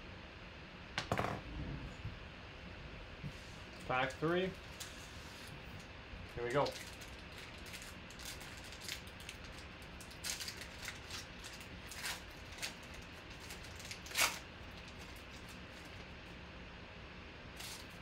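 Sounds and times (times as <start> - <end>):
foil wrapper tearing and crinkling: 6.5 - 16.1, 17.6 - 18.0.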